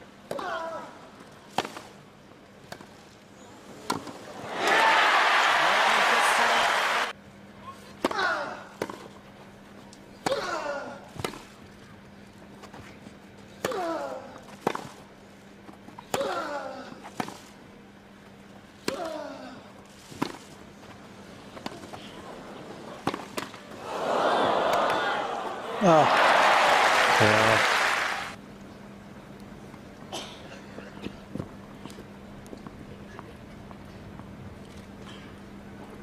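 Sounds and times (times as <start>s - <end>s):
player grunting: 25.7s - 26.2s.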